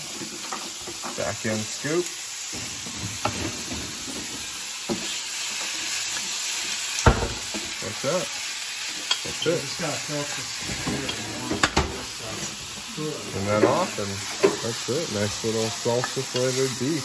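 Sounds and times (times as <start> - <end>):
meat sizzling in a skillet: 0.0 - 17.0
wooden spatula scraping a pan: 2.4 - 6.8, 8.9 - 16.8.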